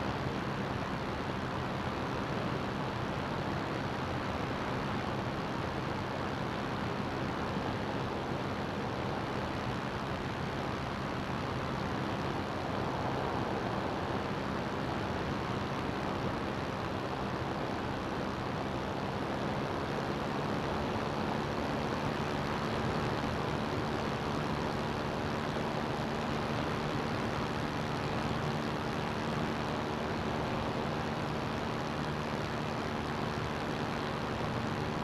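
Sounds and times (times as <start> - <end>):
aircraft engine and propeller droning: 0.0 - 35.0.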